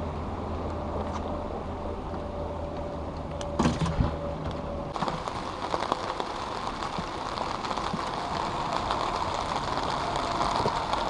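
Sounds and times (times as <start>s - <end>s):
rain hissing on river: 4.9s - 11.0s
raindrops tapping on fabric canopy: 4.9s - 11.0s.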